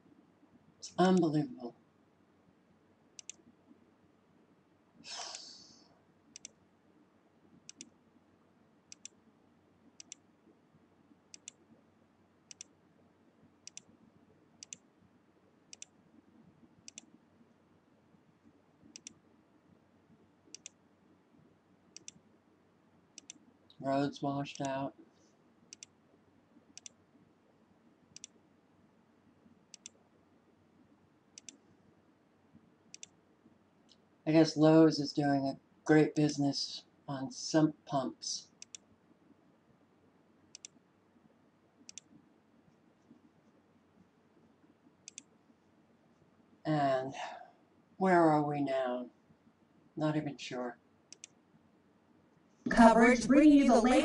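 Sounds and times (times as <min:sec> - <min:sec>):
computer mouse clicking: 0:03.2 - 0:03.4, 0:06.3 - 0:06.6, 0:07.6 - 0:08.0, 0:08.9 - 0:09.2, 0:10.0 - 0:10.2, 0:11.3 - 0:11.7, 0:12.5 - 0:12.8, 0:13.6 - 0:13.9, 0:14.6 - 0:14.9, 0:15.7 - 0:16.0, 0:16.8 - 0:17.2, 0:18.9 - 0:19.2, 0:20.5 - 0:20.8, 0:21.9 - 0:22.2, 0:23.1 - 0:23.4, 0:25.7 - 0:26.0, 0:26.7 - 0:27.0, 0:28.1 - 0:28.4, 0:29.7 - 0:30.0, 0:31.3 - 0:31.6, 0:32.9 - 0:33.2, 0:38.6 - 0:38.9, 0:40.5 - 0:40.8, 0:41.8 - 0:42.2, 0:45.0 - 0:45.4, 0:51.1 - 0:51.4.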